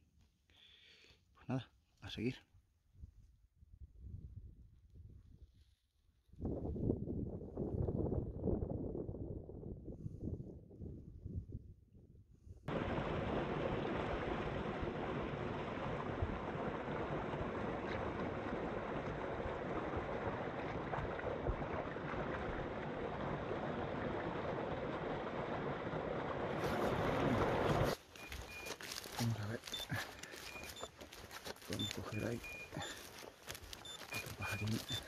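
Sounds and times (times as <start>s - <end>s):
stream splashing over waterfall: 12.7s - 35.0s.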